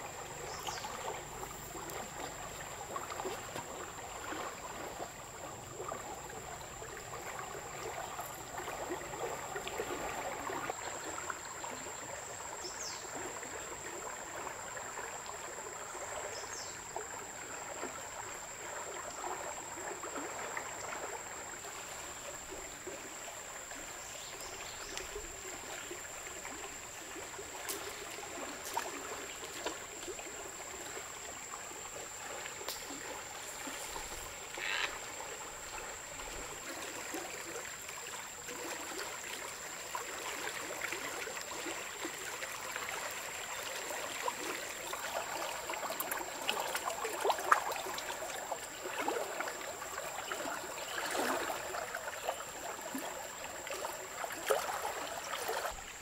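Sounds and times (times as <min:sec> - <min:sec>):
small splashes and knocks: 0:00.0 - 0:05.2, 0:24.4 - 0:31.2, 0:32.2 - 0:56.0
river water running over rocks: 0:00.0 - 0:56.0.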